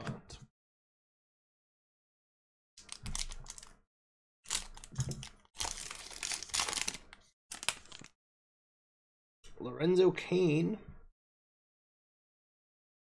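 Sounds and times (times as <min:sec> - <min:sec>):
foil wrapper crinkling and tearing: 0:02.8 - 0:03.7, 0:04.5 - 0:08.2.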